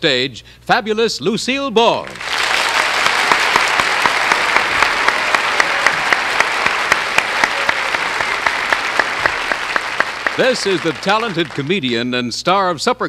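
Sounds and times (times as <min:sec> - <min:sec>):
audience applauding: 0:02.1 - 0:12.2.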